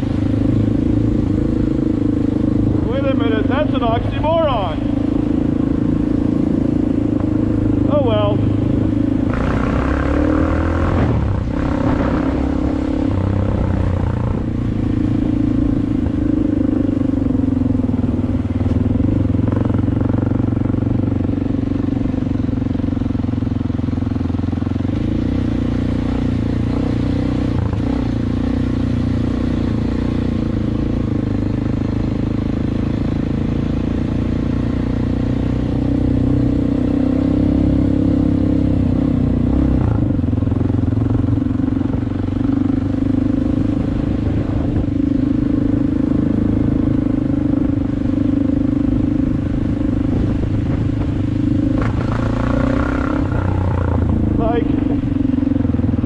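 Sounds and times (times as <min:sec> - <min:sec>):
dirt bike engine running: 0:00.0 - 0:56.0.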